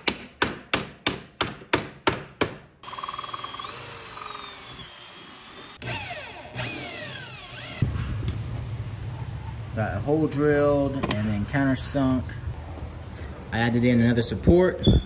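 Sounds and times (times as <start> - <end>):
cordless drill boring metal: 2.8 - 7.8.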